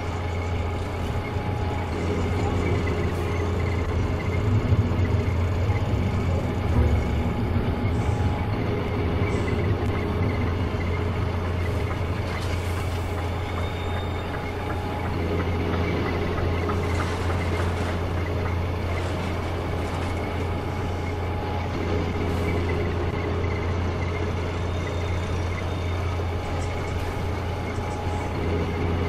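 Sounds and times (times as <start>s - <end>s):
heavy machine engine rumble: 0.0s - 29.0s.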